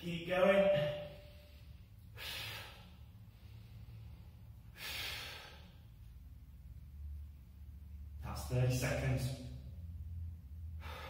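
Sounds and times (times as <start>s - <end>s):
sharp hissing exhales: 1.4s - 3.9s, 4.7s - 5.8s.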